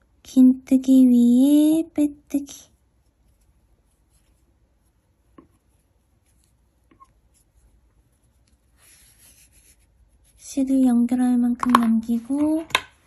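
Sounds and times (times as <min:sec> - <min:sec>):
light rubbing of yarn: 0:02.7 - 0:10.6.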